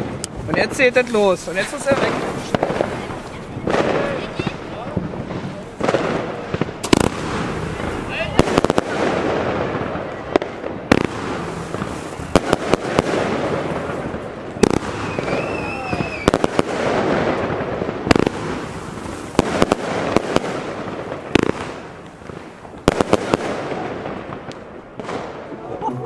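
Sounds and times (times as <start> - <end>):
firework hiss: 0.0 - 25.4
firework shots: 0.0 - 26.0
wavering firework whistle: 14.8 - 16.5.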